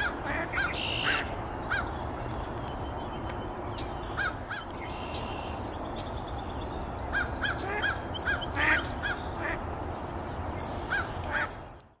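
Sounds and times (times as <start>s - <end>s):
duck quacking: 0.0s - 1.3s.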